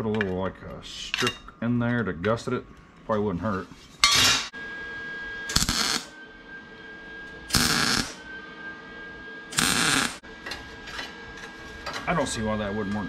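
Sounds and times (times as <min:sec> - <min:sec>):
welder arc crackling: 0:05.5 - 0:06.1, 0:07.5 - 0:08.2, 0:09.5 - 0:10.2.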